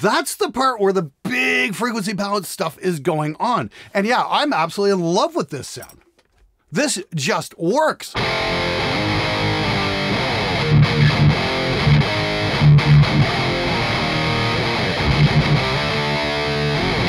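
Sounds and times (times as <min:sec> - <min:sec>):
distorted electric guitar riff: 0:08.2 - 0:17.0.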